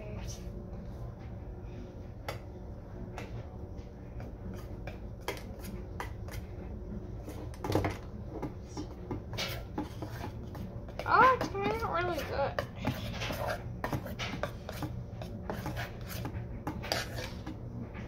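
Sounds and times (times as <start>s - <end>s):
spoon scraping metal bowl: 9.3s - 17.5s.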